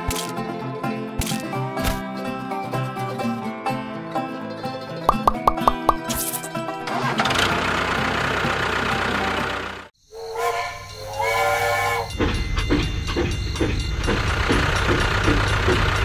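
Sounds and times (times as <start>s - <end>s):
toy train steam whistle: 10.0s - 12.4s.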